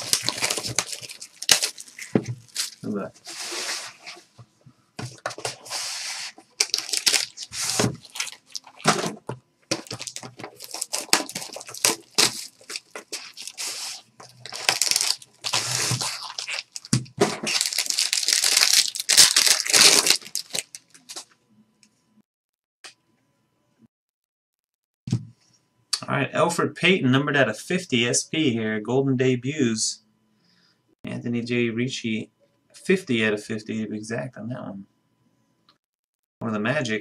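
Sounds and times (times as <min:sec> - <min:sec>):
wrappers ripping and crinkling: 0:00.0 - 0:03.0, 0:06.6 - 0:09.1, 0:09.7 - 0:21.3.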